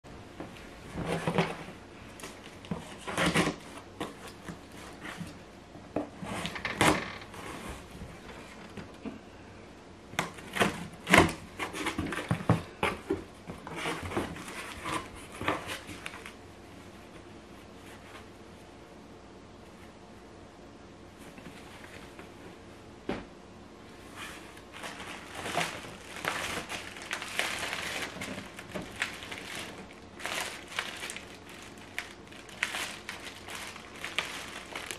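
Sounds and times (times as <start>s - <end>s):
cardboard flaps tearing and rustling: 0.9s - 1.6s, 2.2s - 5.3s, 24.7s - 34.9s.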